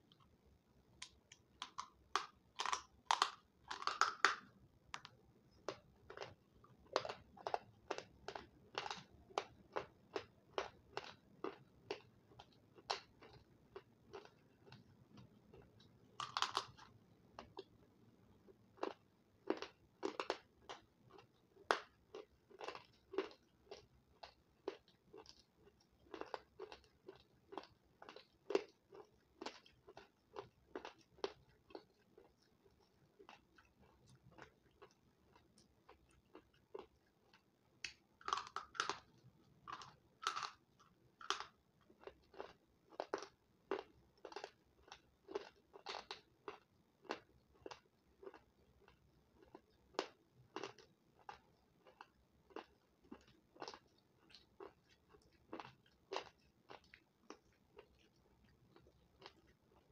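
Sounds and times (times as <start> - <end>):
person crunching dry sticks: 1.0 - 4.4, 16.2 - 16.9, 38.2 - 39.1, 39.7 - 40.6.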